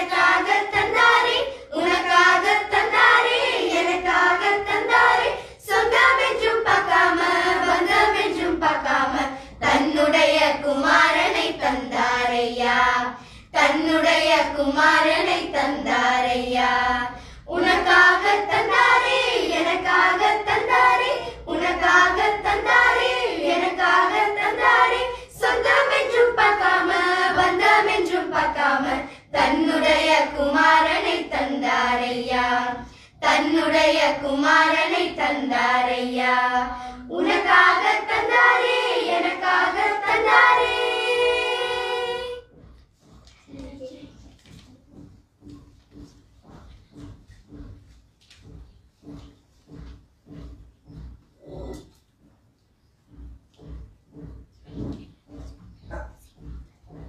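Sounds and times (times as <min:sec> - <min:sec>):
girls singing together: 0:00.0 - 0:42.7.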